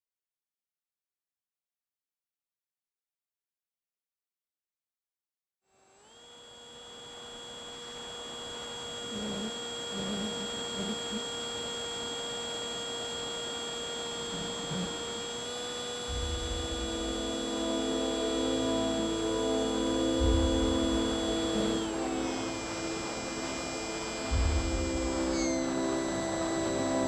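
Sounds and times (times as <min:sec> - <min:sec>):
model plane motor whining: 0:05.7 - 0:27.0
background music with bass: 0:16.1 - 0:27.0.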